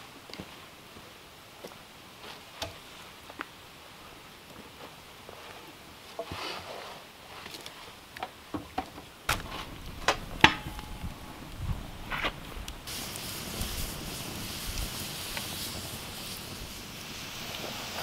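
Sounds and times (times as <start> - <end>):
wood fire crackling and popping: 7.5 - 18.0.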